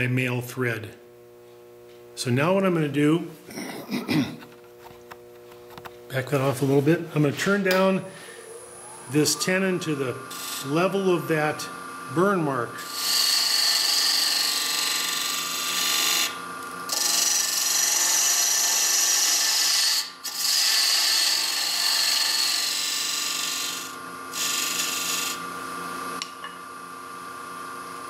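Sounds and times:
lathe running hum: 6.4 - 28.0
tool cutting wood on lathe: 8.7 - 11.8, 12.6 - 25.4.

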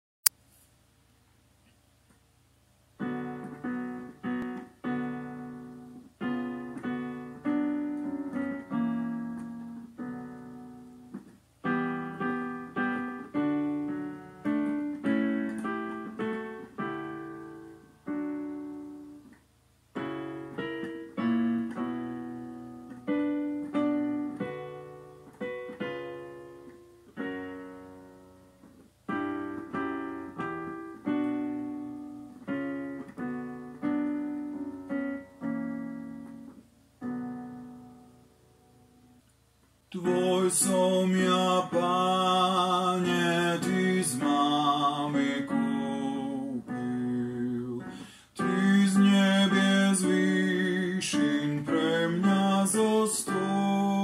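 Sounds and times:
piano playing hymn chords: 3.0 - 39.2, 39.9 - 54.0.

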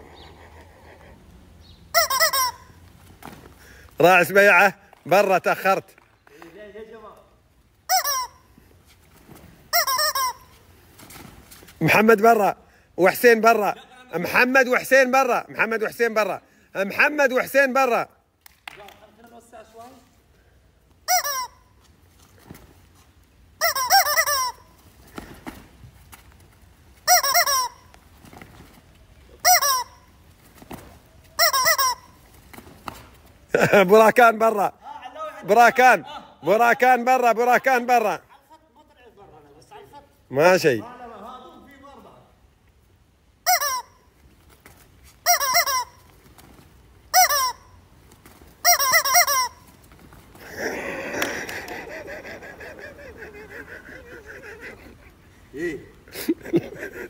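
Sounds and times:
rubber squeaky chicken squawking: 1.9 - 2.8, 7.9 - 8.6, 9.7 - 10.7, 21.0 - 21.8, 23.6 - 24.9, 27.0 - 28.0, 29.4 - 30.2, 31.2 - 32.3, 43.4 - 44.1, 45.2 - 46.2, 47.1 - 47.8, 48.6 - 49.8.

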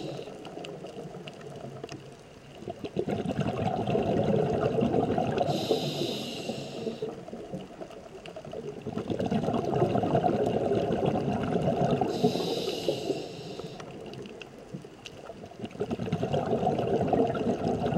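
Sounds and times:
regulator inhalation hiss: 0.0 - 0.3, 5.5 - 7.2, 12.1 - 13.9
faint scattered clicks: 0.1 - 3.0, 12.1 - 15.8
gurgling exhaled bubbles: 2.6 - 14.4, 15.2 - 17.9.

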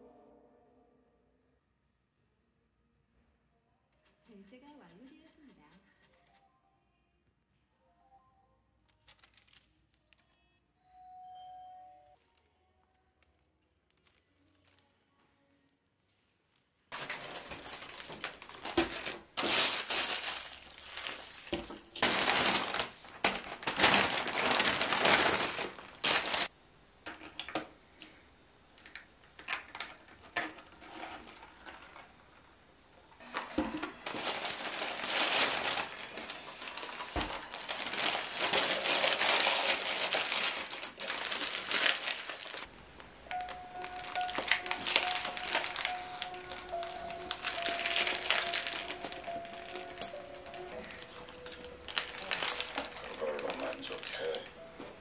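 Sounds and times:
paper bags crinkling: 8.9 - 10.2, 13.2 - 15.2, 16.6 - 26.5, 33.2 - 54.5.

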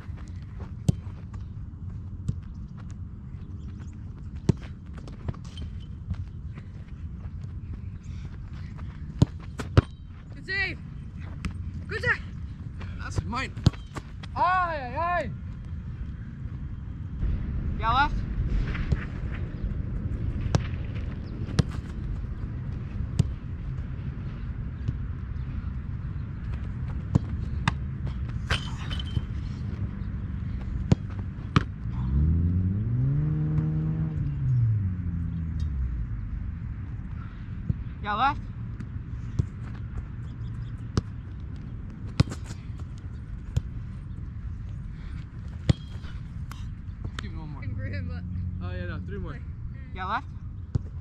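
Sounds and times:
football impacts: 0.0 - 1.5, 4.1 - 14.6, 20.4 - 23.9, 26.4 - 32.1, 41.8 - 44.0, 45.0 - 47.4
steady low rumble: 0.0 - 33.3, 34.0 - 51.0
low rumble: 15.3 - 40.3
football kick thuds: 42.1 - 42.9, 45.6 - 47.2.

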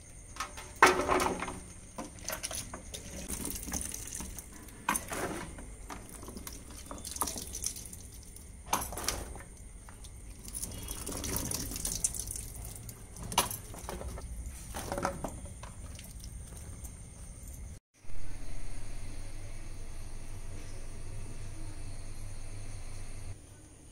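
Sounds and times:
water splashes and drips: 0.4 - 17.8
water sloshing in tub: 0.6 - 17.8.

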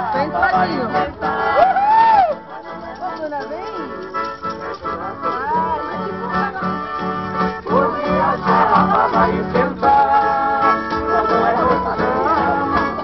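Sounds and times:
accordion dance music: 0.0 - 13.0.

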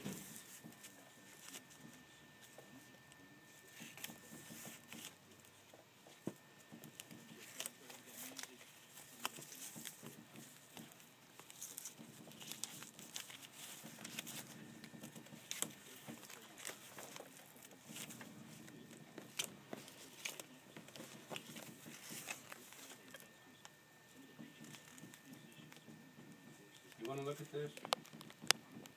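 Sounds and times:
fabric and paper rustling: 0.0 - 28.9
small clicks and taps: 27.8 - 28.9.

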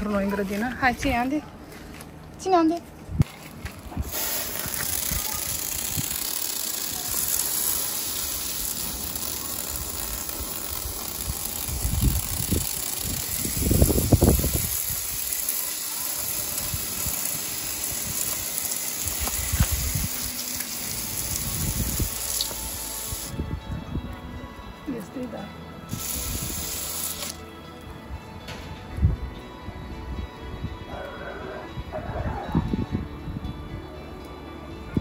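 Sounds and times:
aerosol spray can hissing: 4.0 - 23.4, 25.9 - 27.4.

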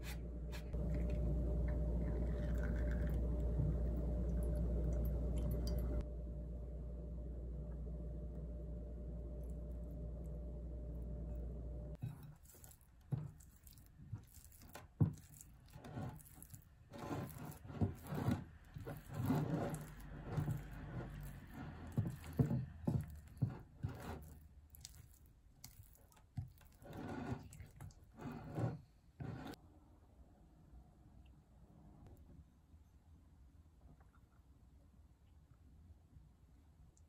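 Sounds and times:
spatula squishing cream cheese: 12.0 - 29.6.

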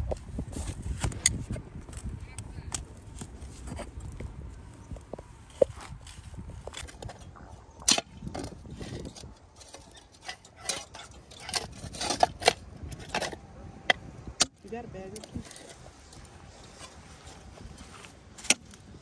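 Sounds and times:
shovel scraping gravelly soil: 5.6 - 13.4, 15.0 - 19.0.

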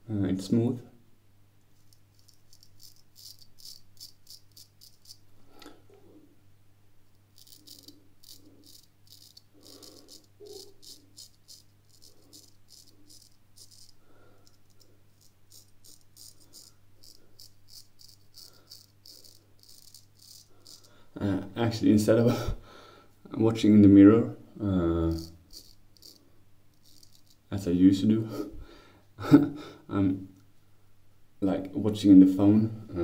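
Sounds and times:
razor scraping stubble: 1.8 - 5.3, 7.3 - 21.0, 25.1 - 27.5.

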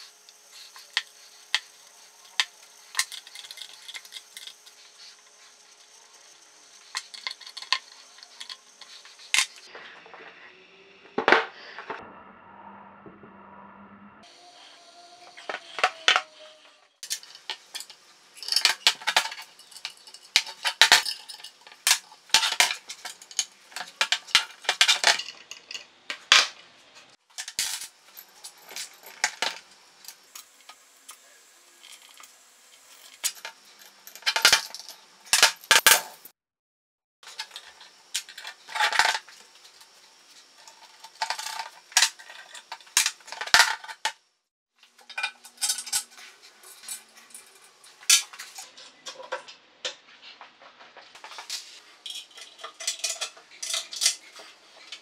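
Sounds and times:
metal parts clinking on table: 0.7 - 4.6, 17.0 - 25.9, 27.4 - 30.7, 31.8 - 36.3, 45.0 - 49.3, 51.2 - 55.0.

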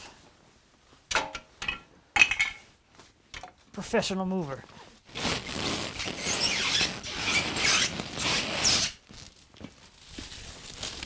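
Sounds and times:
plastic wrap crinkling rustle: 4.2 - 11.0.

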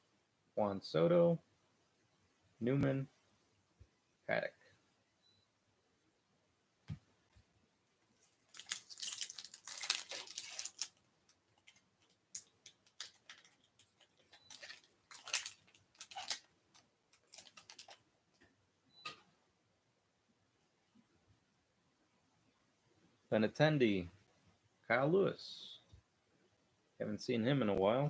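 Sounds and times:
foil wrapper crinkling and tearing: 8.4 - 18.0.

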